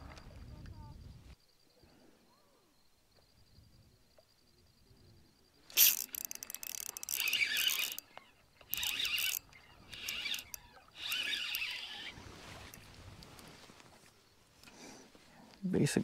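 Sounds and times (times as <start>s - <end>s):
fishing reel gears clicking: 5.7s - 12.8s.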